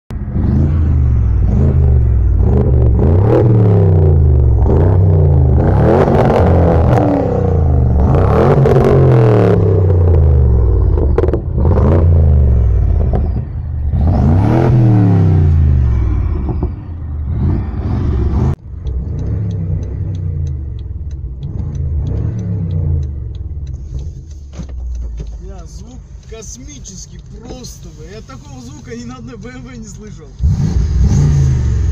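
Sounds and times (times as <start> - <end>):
car engine revving: 0.1 - 31.9
car engine idling: 0.8 - 31.9
hazard light flasher ticking: 18.5 - 30.5.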